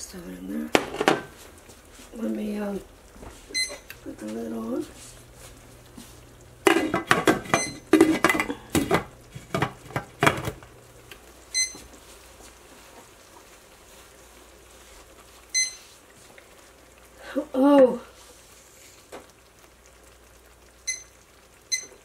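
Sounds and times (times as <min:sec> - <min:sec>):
cookware clattering: 0:00.7 - 0:01.3, 0:06.6 - 0:10.6
thermometer beeps: 0:03.5 - 0:03.9, 0:07.5 - 0:07.9, 0:11.5 - 0:11.9, 0:15.5 - 0:15.8, 0:20.8 - 0:22.0.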